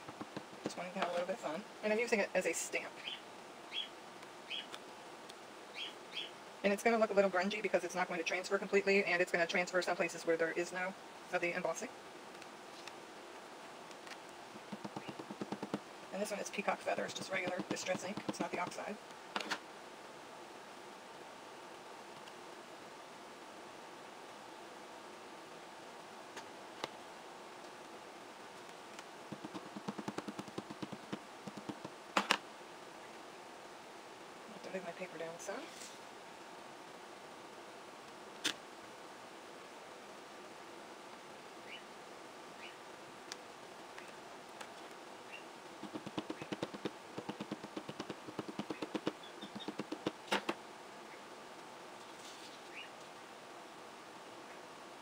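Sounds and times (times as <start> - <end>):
ink pad tapping on plastic: 14.7 - 15.8, 17.2 - 18.8, 29.3 - 32.4, 45.8 - 50.1.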